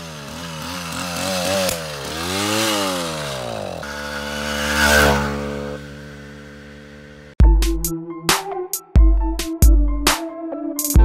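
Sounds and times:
two-stroke engine revving: 0.0 - 7.4.

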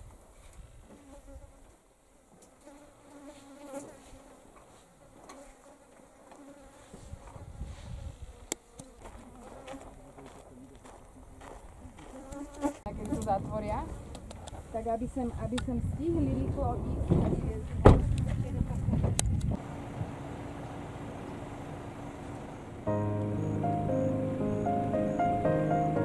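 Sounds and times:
flies buzzing: 2.4 - 10.0, 12.1 - 13.2.

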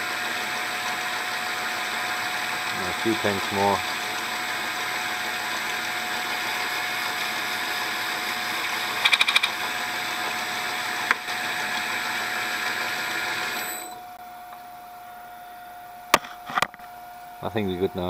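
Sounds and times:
lathe running: 0.0 - 14.2
rattle of ticks: 9.0 - 9.6.

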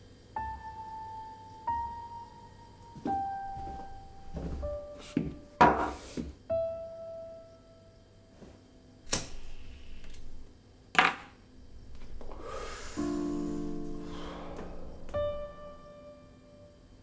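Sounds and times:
sharp clicks with hiss: 9.1 - 10.4
sustained film score chord: 11.6 - 17.0.

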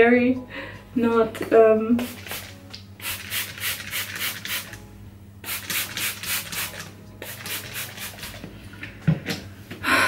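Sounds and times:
spray bottle squirts: 2.1 - 4.8, 5.5 - 8.4.

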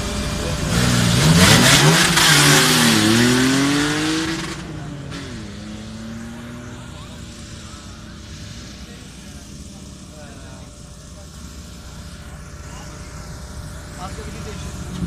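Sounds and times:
engine revving: 0.0 - 15.0.

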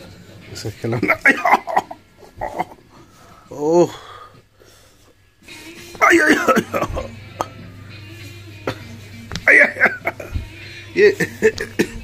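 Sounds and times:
faint background music: 0.0 - 12.0
low steady hum: 0.0 - 12.0.

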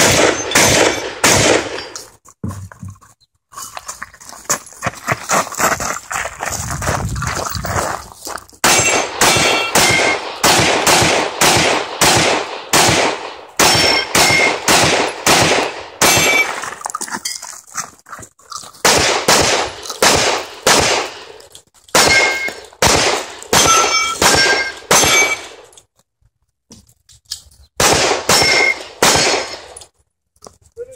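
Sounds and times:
rapid pistol shots: 0.0 - 1.8, 8.6 - 16.5, 18.8 - 21.4, 22.0 - 25.6, 27.8 - 29.7
steel targets ringing: 0.0 - 2.1, 8.7 - 10.3, 13.6 - 14.7, 16.0 - 16.6, 22.0 - 22.7, 23.5 - 25.6, 28.3 - 29.6.

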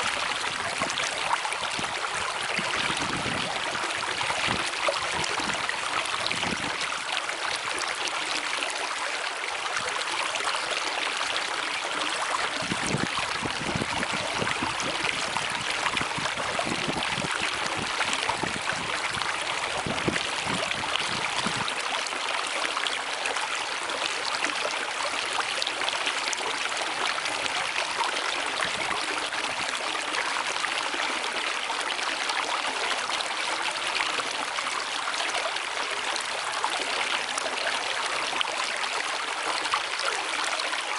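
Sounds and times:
rushing stream water: 0.0 - 40.9.

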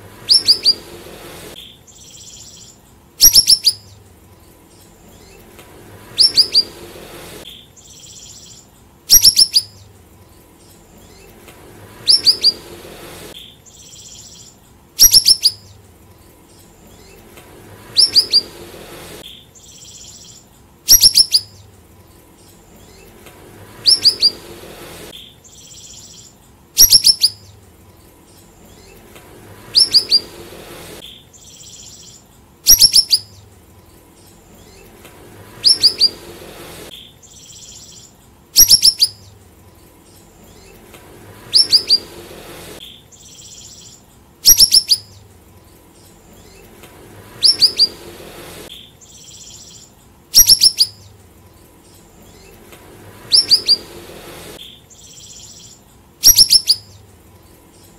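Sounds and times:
songbird calling sharp notes: 0.0 - 57.9.

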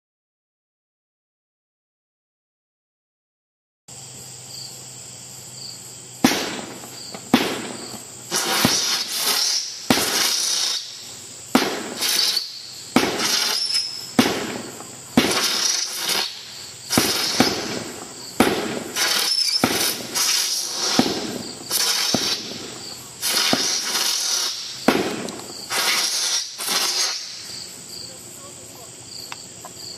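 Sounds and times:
firework shots: 6.2 - 27.7
firework whistle and hiss: 6.2 - 27.8.

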